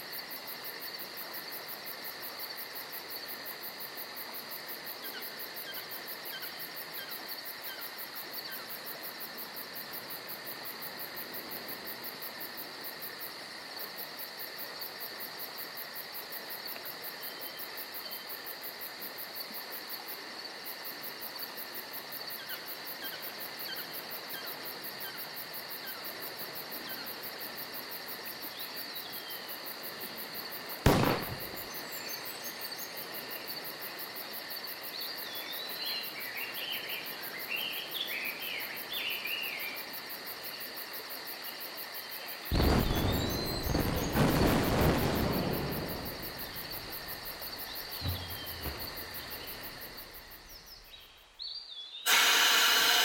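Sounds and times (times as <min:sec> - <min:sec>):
insects chirping: 0:00.0 - 0:53.0
faint bird chirps: 0:42.5 - 0:44.5, 0:47.6 - 0:52.1
sharp thump: 0:46.0 - 0:50.5.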